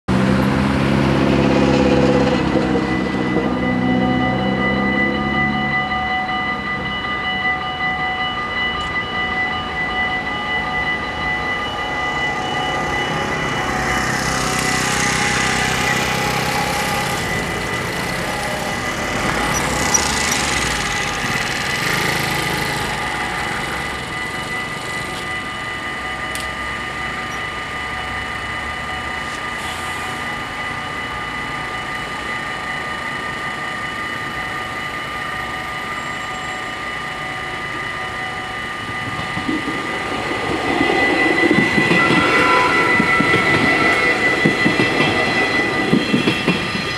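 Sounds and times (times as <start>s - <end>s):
level crossing bells ringing: 0.1s - 46.9s
road traffic noise: 0.1s - 46.9s
train rumbling: 0.1s - 46.9s.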